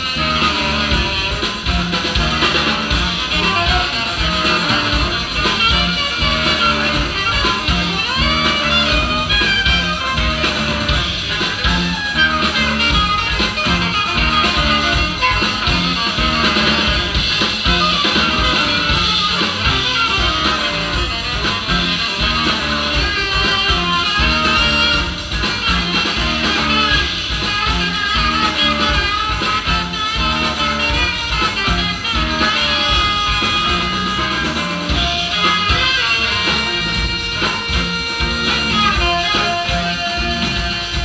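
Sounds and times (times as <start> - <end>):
live band music: 0.0 - 41.0.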